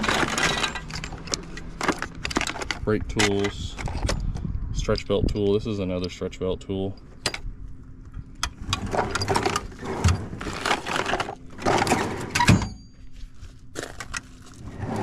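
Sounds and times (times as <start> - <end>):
metal hand tools clinking: 0.0 - 4.0.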